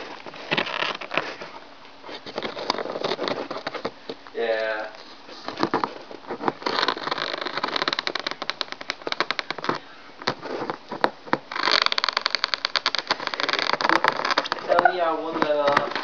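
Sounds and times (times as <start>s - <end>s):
cat chewing cardboard: 0.0s - 16.0s.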